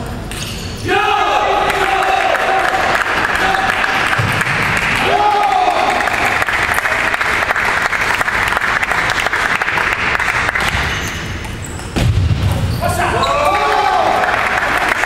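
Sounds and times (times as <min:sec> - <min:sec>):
spectators clapping: 0:01.6 - 0:11.0, 0:13.6 - 0:15.0.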